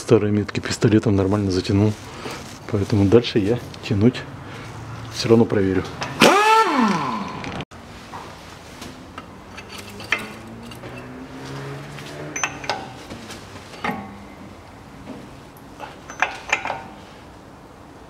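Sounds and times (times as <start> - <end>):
metal tool clicks and clinks: 9.5 - 11.2, 12.3 - 13.0, 15.8 - 17.0.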